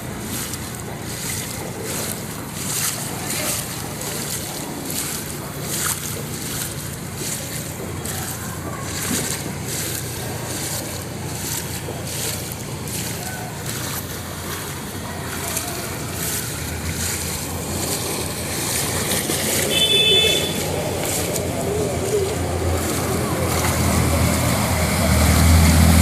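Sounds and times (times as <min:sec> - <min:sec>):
footsteps splashing through water: 0:00.0 - 0:26.0
rushing water: 0:00.0 - 0:26.0.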